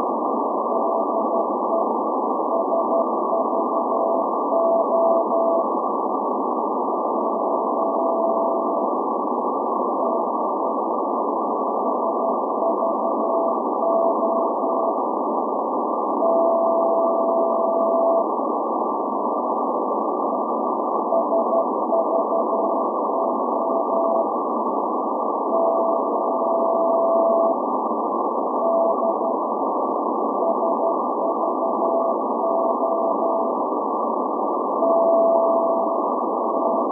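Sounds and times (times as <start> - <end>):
radio band noise hiss: 0.0 - 36.9
morse code tone: 2.5 - 5.6, 21.1 - 24.2, 30.4 - 33.6, 34.8 - 36.9.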